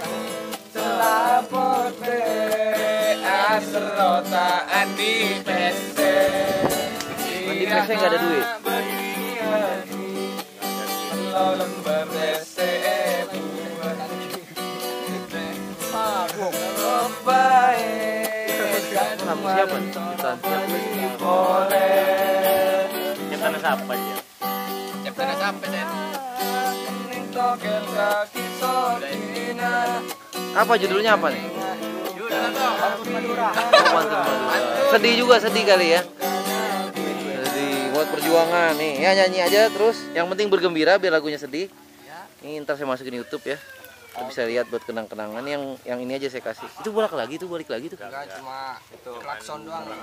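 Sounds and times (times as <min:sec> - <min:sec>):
acoustic guitar strumming chords: 0:00.0 - 0:42.0
person singing long notes: 0:00.1 - 0:23.6, 0:24.2 - 0:38.7.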